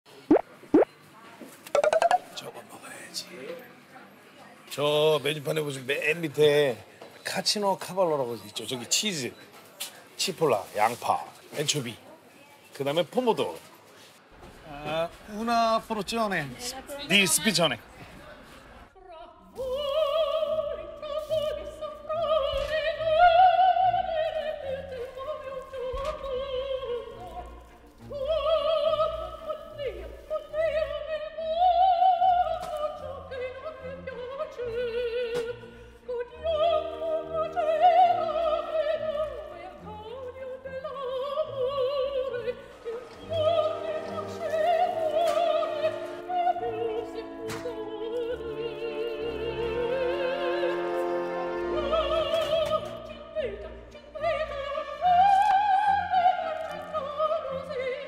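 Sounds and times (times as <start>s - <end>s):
operatic singing: 28.1s - 58.0s
orchestral accompaniment: 42.3s - 53.0s.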